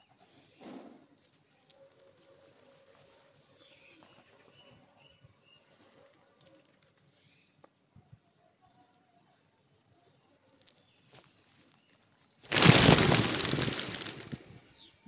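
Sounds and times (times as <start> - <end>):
pigeons pecking and feet tapping: 12.5 - 14.4.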